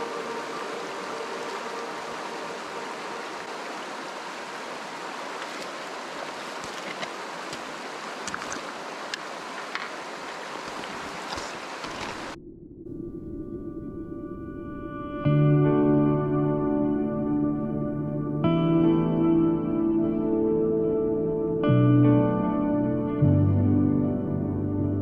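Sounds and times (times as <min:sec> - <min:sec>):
soft ambient music: 0:00.0 - 0:05.4, 0:12.9 - 0:25.0
river water rushing over rocks: 0:00.0 - 0:12.4.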